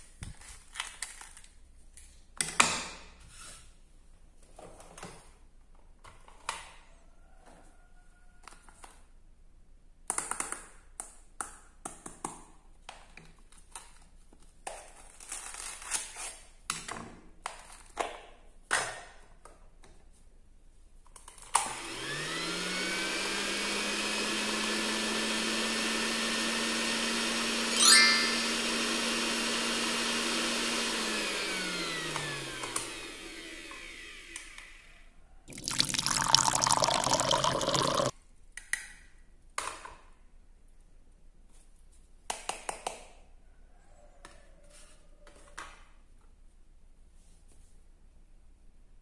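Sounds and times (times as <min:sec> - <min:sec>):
toy blender motor humming: 0:21.7 - 0:34.9, 0:35.5 - 0:38.1.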